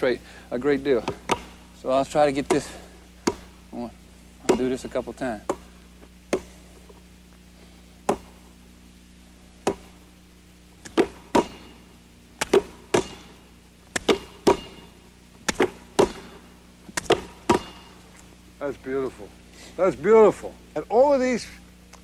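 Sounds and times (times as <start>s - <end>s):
hands smacking basketball: 1.0s - 1.6s, 2.5s - 3.5s, 6.3s - 6.6s, 8.0s - 8.4s, 9.6s - 10.0s, 10.8s - 11.8s, 12.4s - 18.0s.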